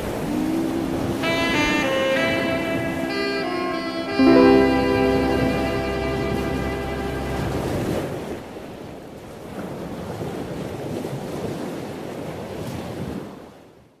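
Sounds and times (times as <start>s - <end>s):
wind on microphone: 0.0s - 4.1s
small waves washing onto beach: 7.4s - 13.8s.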